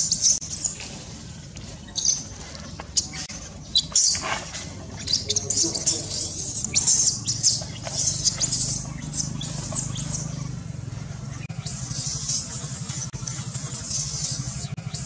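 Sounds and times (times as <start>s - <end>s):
baby monkey shrieking: 5.0s - 10.6s.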